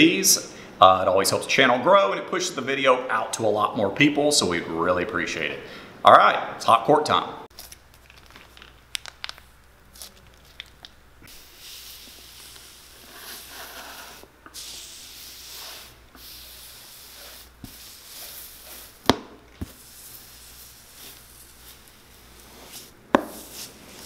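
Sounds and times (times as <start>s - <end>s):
heated iron hissing: 11.3s - 24.0s.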